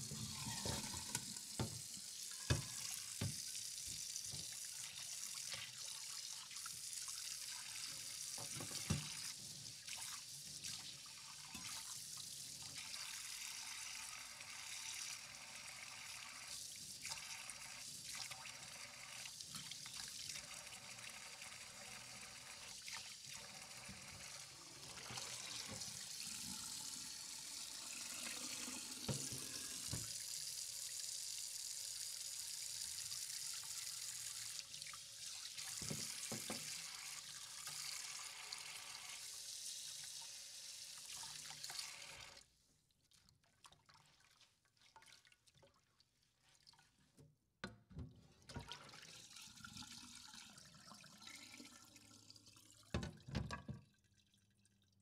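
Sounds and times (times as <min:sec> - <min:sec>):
tap running: 0:00.0 - 0:03.5, 0:28.2 - 0:30.2, 0:35.8 - 0:36.7.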